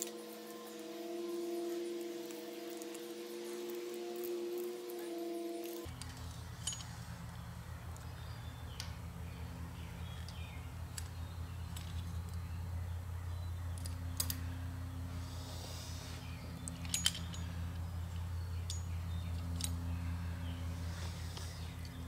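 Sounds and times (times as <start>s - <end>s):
steady low hum: 0.0s - 22.0s
metal parts clicking and clinking: 5.6s - 8.2s, 10.1s - 12.6s, 13.7s - 14.5s, 16.5s - 20.2s.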